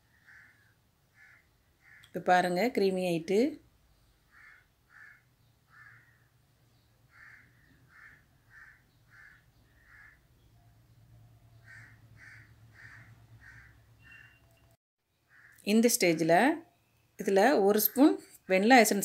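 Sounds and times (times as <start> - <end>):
faint bird calls: 0.0 - 2.2, 4.1 - 10.7, 11.4 - 15.7.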